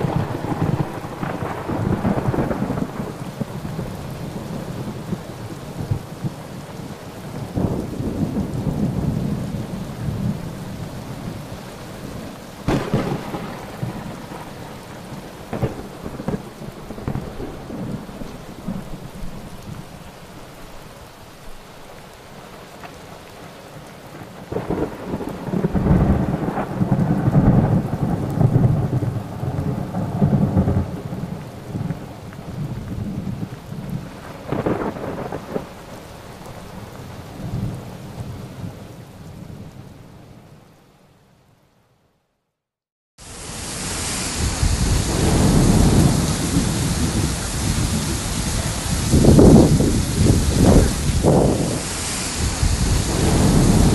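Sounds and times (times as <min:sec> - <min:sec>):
thunder crack: 0:00.0 - 0:03.9, 0:12.7 - 0:14.7, 0:15.5 - 0:19.0, 0:44.3 - 0:53.9
low thunder rumbles: 0:00.0 - 0:20.1, 0:24.2 - 0:39.8, 0:44.1 - 0:53.9
heavy rain: 0:00.0 - 0:41.8, 0:43.2 - 0:53.9.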